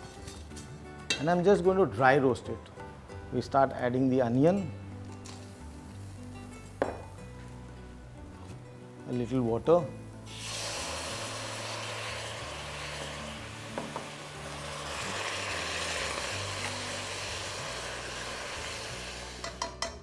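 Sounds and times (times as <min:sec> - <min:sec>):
water sizzling in hot wok: 0:05.2 - 0:06.8, 0:09.7 - 0:19.9.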